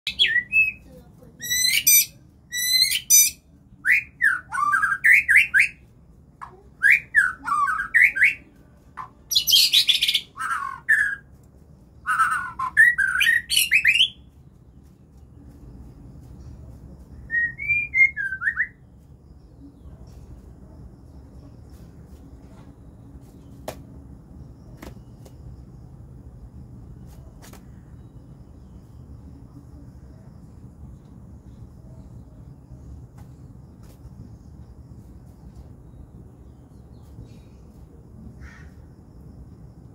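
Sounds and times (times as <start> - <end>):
bird singing whistled phrases: 0.1 - 0.8, 1.4 - 5.8, 6.8 - 8.5, 12.0 - 14.2, 17.3 - 18.8
harsh rasping bird calls: 1.4 - 5.8, 6.8 - 11.3, 12.0 - 14.3, 38.3 - 38.9.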